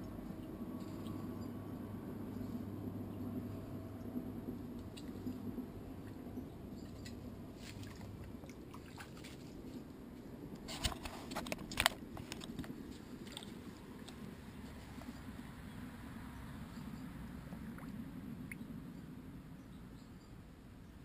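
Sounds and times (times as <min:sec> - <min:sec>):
underwater rumble of moving water: 0:12.1 - 0:19.5.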